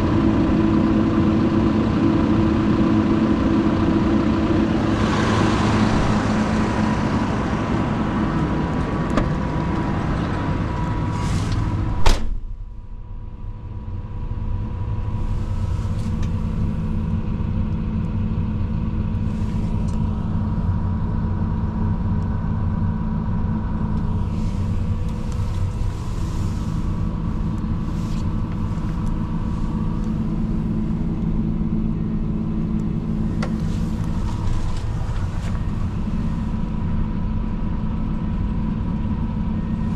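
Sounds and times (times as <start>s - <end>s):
diesel engine idling: 0.0s - 39.9s
cab door shutting: 11.5s - 12.6s.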